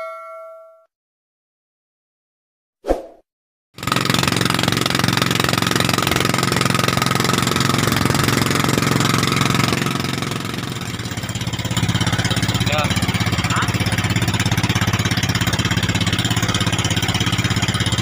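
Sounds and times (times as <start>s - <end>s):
boat engine running: 3.8s - 18.0s.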